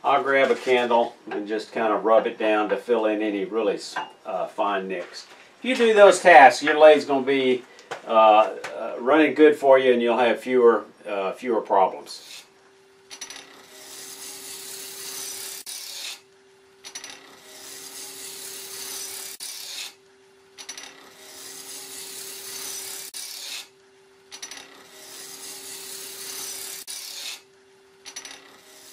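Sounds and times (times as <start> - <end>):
turning tool cutting wood: 12.2 - 12.5, 13.1 - 20.0, 20.6 - 28.9
wood lathe humming: 13.5 - 16.3, 17.2 - 20.0, 21.0 - 23.8, 24.4 - 27.5, 28.3 - 28.9.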